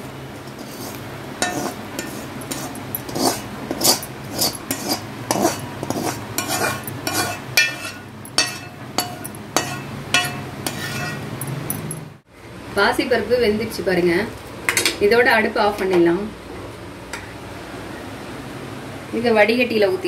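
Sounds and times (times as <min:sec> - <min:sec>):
metal spoon scraping a pan: 0:00.5 - 0:11.8.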